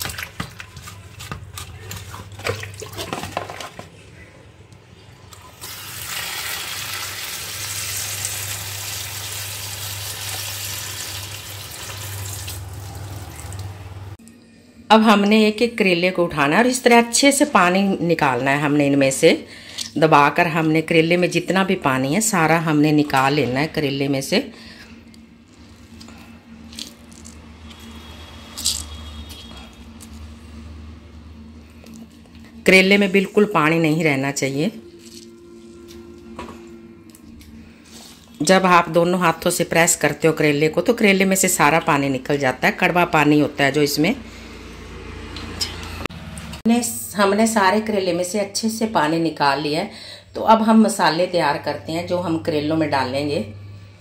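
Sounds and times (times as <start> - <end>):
wet squelches: 0.0 - 3.6
hands sloshing in water: 0.0 - 3.8.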